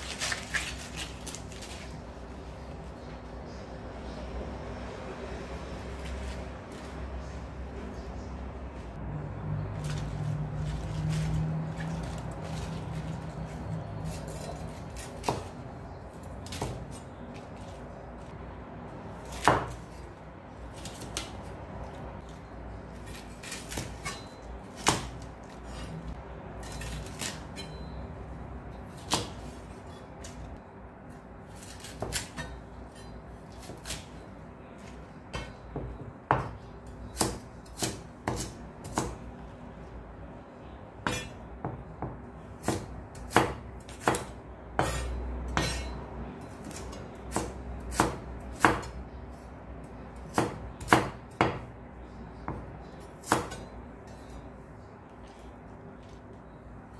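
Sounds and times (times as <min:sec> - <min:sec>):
knife chopping on wooden board: 0:14.1 - 0:15.6, 0:19.2 - 0:19.8, 0:37.2 - 0:39.2, 0:41.0 - 0:46.0, 0:46.6 - 0:49.0, 0:50.3 - 0:51.7, 0:52.4 - 0:53.7.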